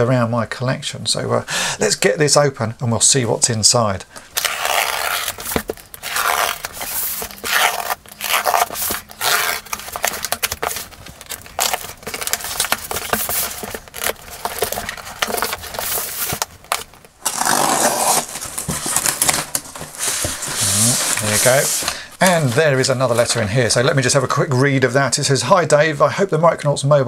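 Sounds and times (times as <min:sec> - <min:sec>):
utility knife cutting cardboard: 0:04.3 - 0:22.0.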